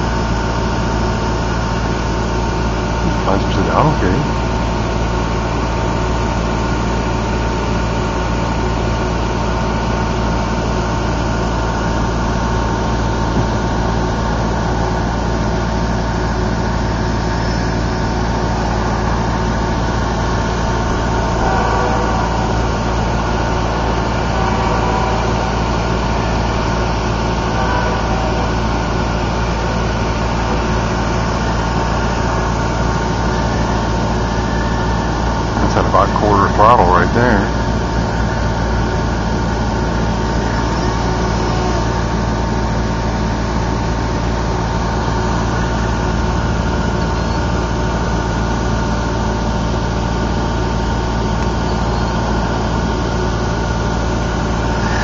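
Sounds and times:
engine-like hum: 0:00.0 - 0:55.0
faint wavering notes: 0:11.8 - 0:35.8.

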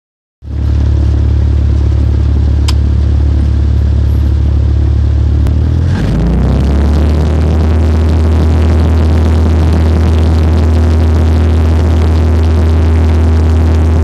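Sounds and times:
propeller aircraft engine droning: 0:00.4 - 0:14.0.

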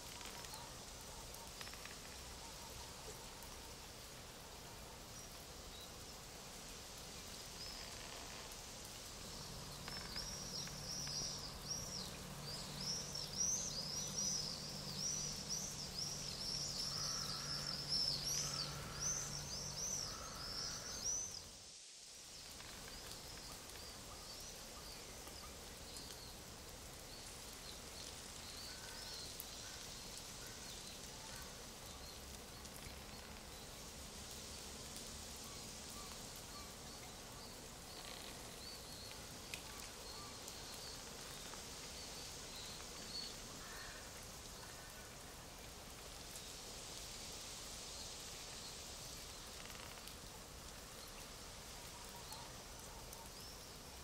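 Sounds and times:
rustling hiss: 0:00.0 - 0:54.0
birds chirping: 0:09.4 - 0:21.4.

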